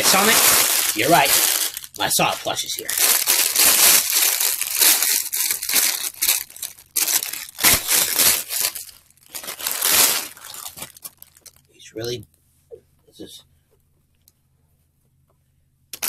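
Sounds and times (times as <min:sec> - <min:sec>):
plastic wrapping crinkling: 0:00.0 - 0:11.8.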